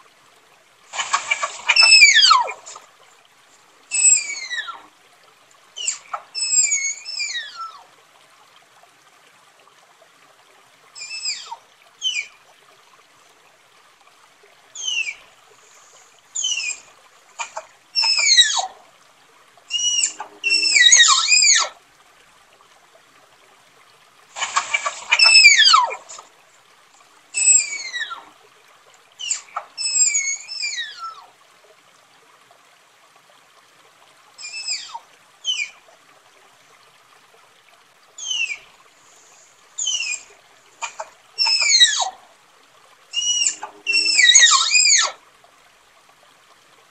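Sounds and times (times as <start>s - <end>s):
tapir whistling squeals: 1.1s - 2.7s, 3.9s - 4.8s, 5.8s - 7.7s, 14.8s - 15.2s, 16.4s - 16.8s, 18.0s - 18.7s, 19.7s - 21.7s, 24.5s - 26.1s, 27.4s - 28.2s, 29.2s - 31.2s, 34.4s - 35.7s, 38.2s - 38.6s, 39.8s - 40.3s, 41.4s - 42.1s, 43.2s - 45.2s.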